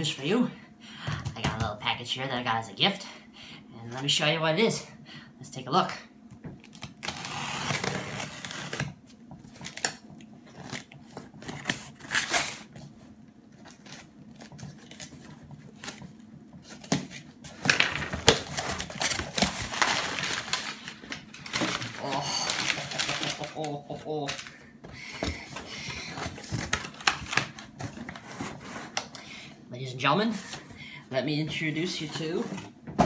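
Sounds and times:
packing tape tearing: 0:06.6 - 0:08.9, 0:09.6 - 0:12.8, 0:17.6 - 0:24.5
crumpled paper rustling: 0:06.7 - 0:29.0.

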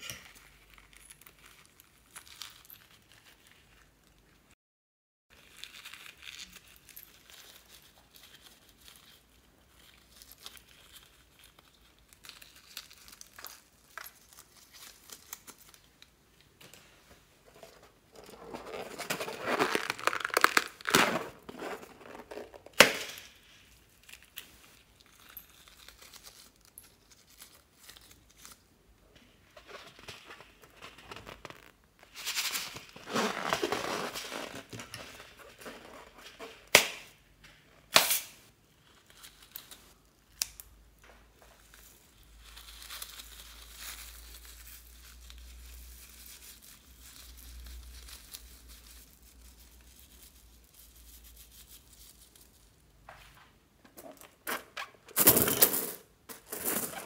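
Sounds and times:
balloons crinkling in hands: 0:05.3 - 0:16.7, 0:17.6 - 0:28.7, 0:29.6 - 0:36.8, 0:41.3 - 0:52.8.

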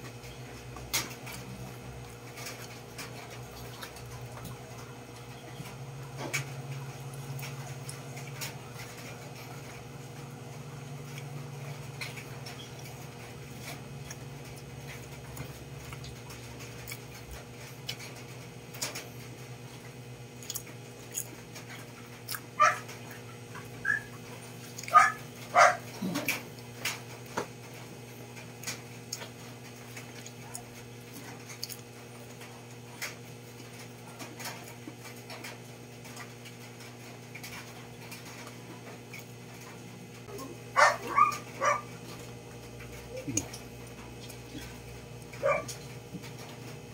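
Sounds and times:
steady low hum: 0:00.0 - 0:46.9
person eating with hands: 0:00.1 - 0:46.9.

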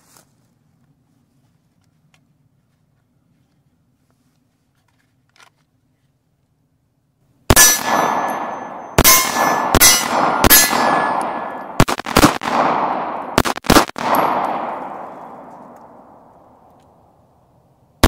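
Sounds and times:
steel plate targets ringing: 0:07.5 - 0:11.8, 0:14.0 - 0:16.1
handgun shots: 0:07.5 - 0:16.2.

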